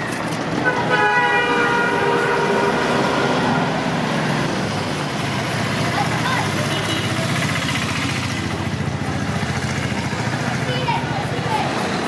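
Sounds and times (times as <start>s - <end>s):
traffic rumble: 0.0s - 12.0s
vehicle horn: 0.6s - 3.7s.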